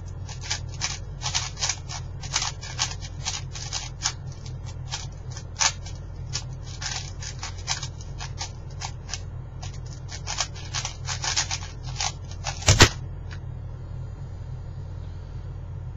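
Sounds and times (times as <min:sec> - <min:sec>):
plastic cube clicking as turned: 0:00.3 - 0:04.2, 0:04.9 - 0:13.0
hands slapping timer pads: 0:04.9 - 0:13.0.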